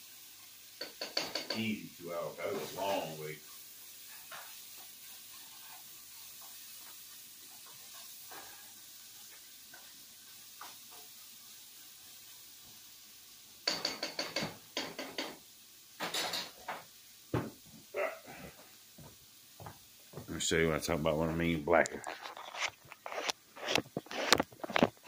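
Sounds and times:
spoon stirring and scraping in pots: 0.4 - 1.8, 2.4 - 11.3, 13.6 - 15.4, 16.0 - 16.9, 21.4 - 25.0
utensils and cookware clattering: 0.8 - 1.8, 13.6 - 15.4, 16.0 - 16.9.

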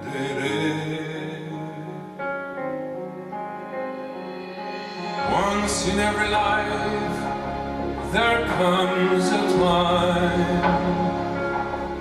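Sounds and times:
song over loudspeakers: 0.0 - 12.0.

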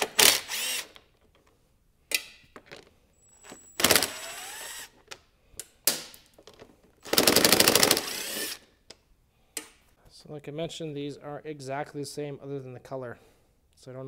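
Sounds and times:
impact driver whirring: 0.0 - 1.0, 3.5 - 5.0, 7.0 - 8.7.

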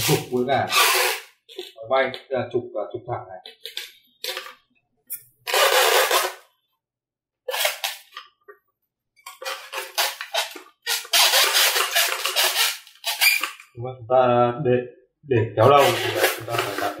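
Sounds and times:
hand scraping foam board: 9.4 - 13.6, 15.6 - 17.0.

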